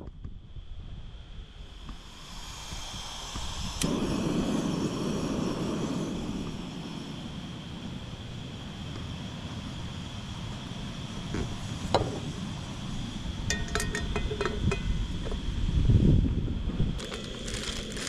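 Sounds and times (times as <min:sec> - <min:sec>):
gas burner roaring: 0:00.8 - 0:18.0
metal cookware clinking: 0:13.5 - 0:14.9.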